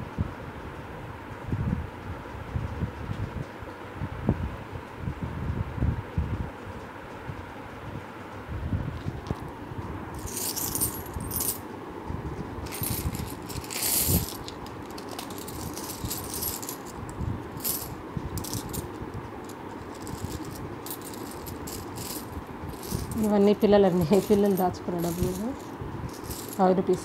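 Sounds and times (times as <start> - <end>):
coins clinking and jingling: 10.2 - 11.6, 12.6 - 27.0.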